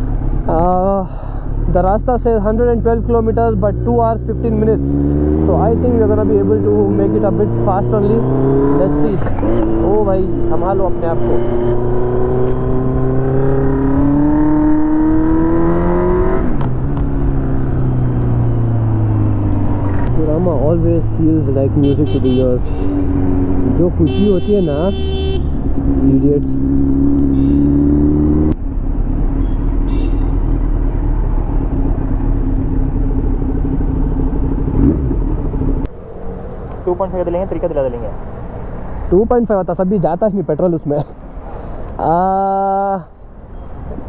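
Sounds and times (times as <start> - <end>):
motorcycle engine accelerating: 0.0 - 24.2, 25.4 - 39.2
motorcycle engine running: 25.0 - 37.3.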